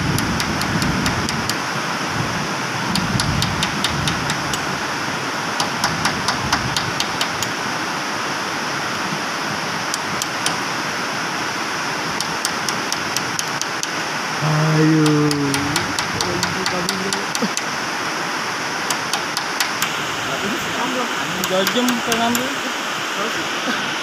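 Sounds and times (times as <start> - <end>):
loud background hiss: 0.0 - 24.0
metal tool tapping on wheel hub: 3.0 - 4.6, 5.6 - 7.5, 18.9 - 19.9, 21.4 - 22.5.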